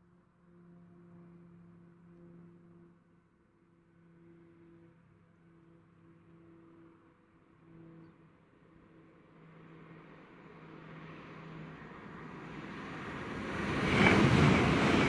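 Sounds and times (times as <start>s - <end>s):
high-speed train approaching: 10.6s - 15.0s.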